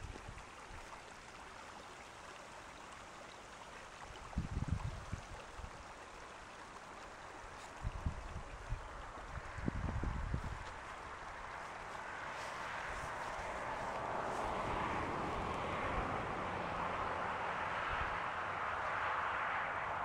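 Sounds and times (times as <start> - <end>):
water trickling: 0.0 - 17.4
wind gusts on microphone: 4.2 - 5.8, 7.7 - 18.4.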